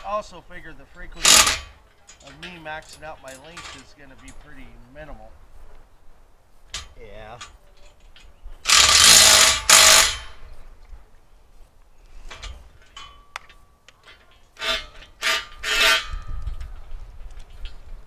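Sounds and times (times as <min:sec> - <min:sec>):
metal tools clanking on steel: 0:00.0 - 0:05.0, 0:06.7 - 0:10.5, 0:12.3 - 0:16.6.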